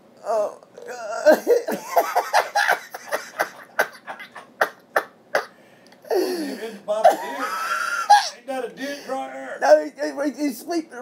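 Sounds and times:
man laughing hard: 0:01.2 - 0:05.5, 0:07.0 - 0:08.4.

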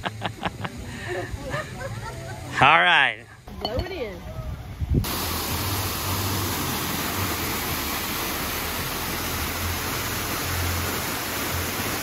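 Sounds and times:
waterfall pouring into pool: 0:05.0 - 0:12.0.

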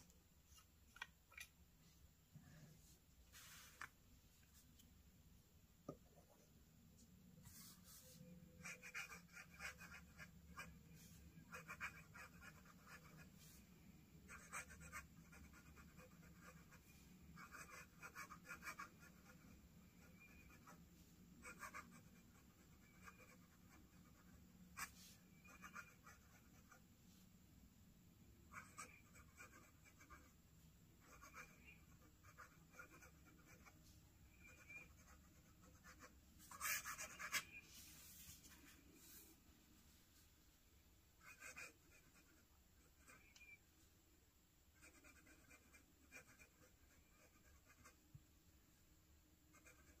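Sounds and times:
pen nib scratching paper: 0:08.6 - 0:13.3, 0:14.3 - 0:20.8, 0:34.4 - 0:37.5, 0:49.5 - 0:50.0.

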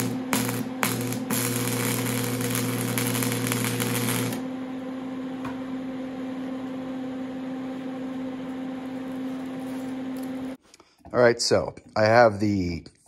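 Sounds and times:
electric arc welding hiss: 0:00.0 - 0:04.4.

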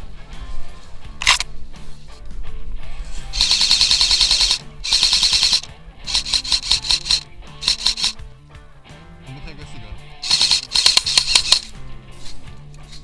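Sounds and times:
background music with bass line: 0:00.0 - 0:13.0
airsoft rifle full-auto bursts: 0:03.4 - 0:08.2, 0:10.2 - 0:11.7.

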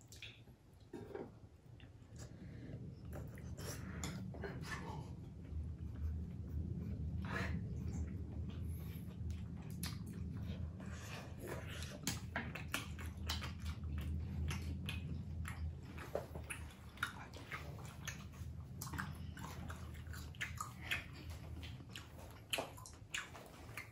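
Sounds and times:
low steady hum: 0:00.0 - 0:23.9
biting and chewing noodles: 0:08.4 - 0:23.9.

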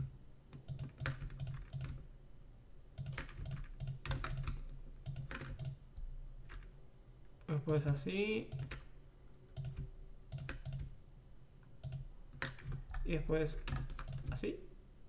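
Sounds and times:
keyboard keys clicking: 0:00.0 - 0:02.0, 0:03.0 - 0:05.8, 0:07.7 - 0:08.8, 0:09.6 - 0:10.9, 0:11.8 - 0:14.4.

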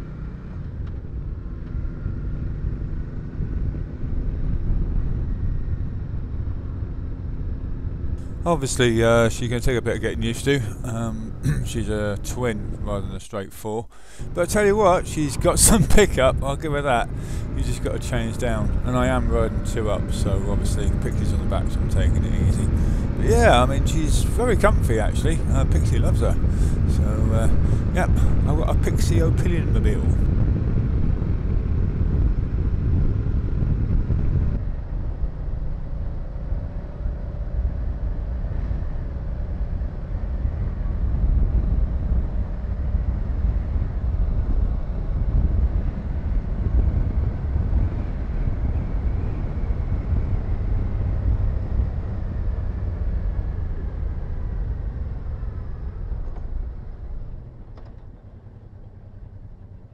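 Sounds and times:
motorcycle engine rumble: 0:00.0 - 0:59.9
wind noise on microphone: 0:22.6 - 0:36.4, 0:37.6 - 0:58.0.

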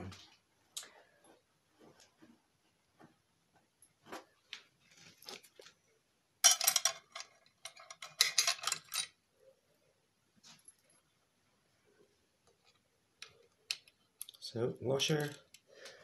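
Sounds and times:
small metal parts clicking: 0:06.4 - 0:09.2, 0:13.2 - 0:14.4.

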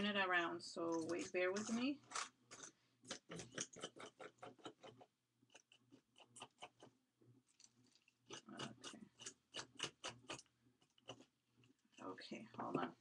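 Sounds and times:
gritty paste scraped with tool: 0:00.9 - 0:12.6.

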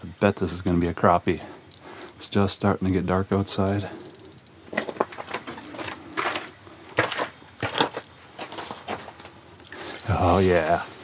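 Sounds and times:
handling clicks and knocks: 0:00.2 - 0:00.8, 0:01.4 - 0:09.4
crunching scrapes: 0:04.7 - 0:11.0.

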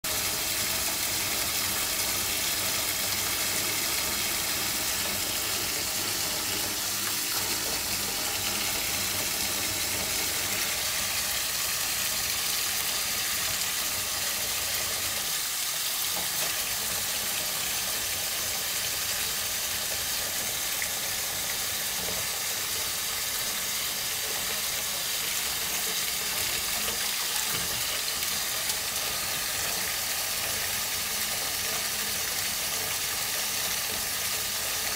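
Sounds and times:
tap running into metal sink: 0:16.0 - 0:18.2, 0:19.0 - 0:34.9.

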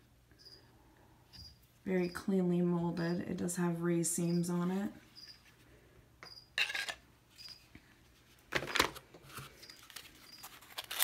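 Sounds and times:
packaging rustles and clicks: 0:08.5 - 0:11.0.

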